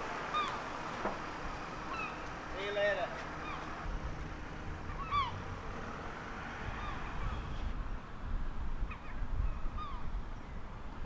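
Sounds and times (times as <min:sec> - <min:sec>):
gulls calling: 0:00.0 - 0:03.9, 0:04.7 - 0:05.5, 0:06.6 - 0:07.7, 0:08.9 - 0:10.1
low steady rumble: 0:00.0 - 0:11.0.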